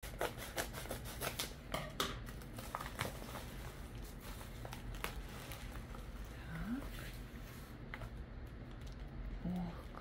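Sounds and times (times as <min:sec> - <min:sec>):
paper crinkling and rustling: 0:02.3 - 0:06.2.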